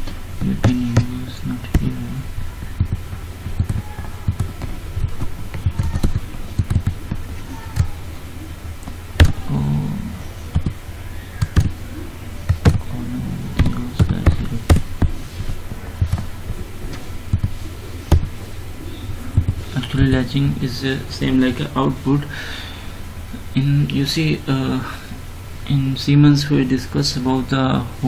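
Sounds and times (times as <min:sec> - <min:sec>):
steady low hum: 0:00.0 - 0:28.0
keyboard keystrokes: 0:02.8 - 0:07.2, 0:16.0 - 0:16.3.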